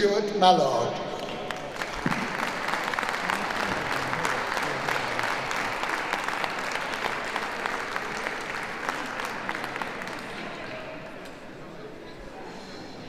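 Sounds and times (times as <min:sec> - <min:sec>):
audience applauding: 0:01.2 - 0:11.4.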